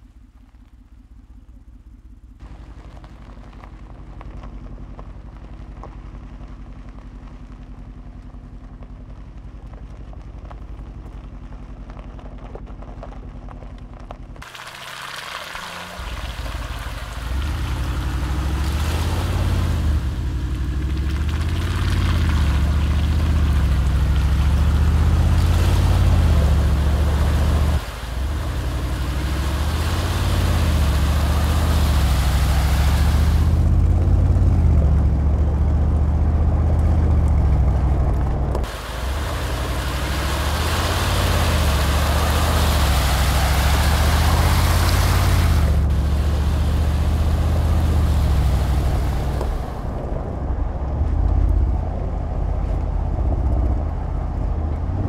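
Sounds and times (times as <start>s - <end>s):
car engine running: 0.0s - 55.0s.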